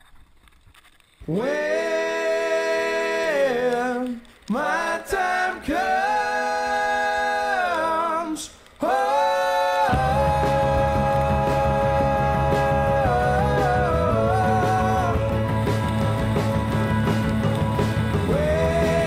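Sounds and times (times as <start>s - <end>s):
person singing long held notes: 1.3s - 16.3s, 18.1s - 19.0s
backing instruments: 9.9s - 19.0s.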